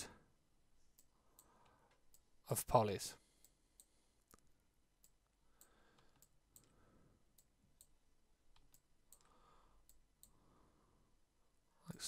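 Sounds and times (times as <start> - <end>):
computer mouse clicks: 3.4 - 6.8.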